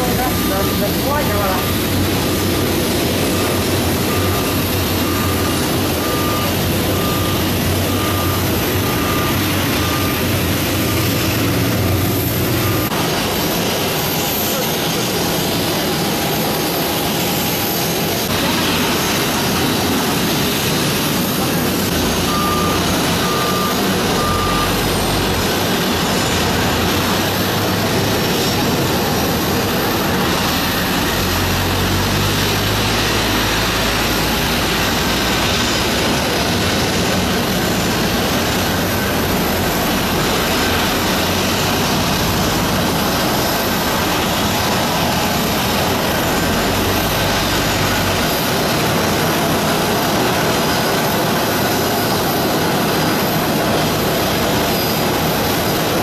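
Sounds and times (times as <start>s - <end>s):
short beeps: 0.0s - 1.9s, 3.3s - 12.9s, 22.1s - 25.0s
jet engines running: 0.0s - 56.0s.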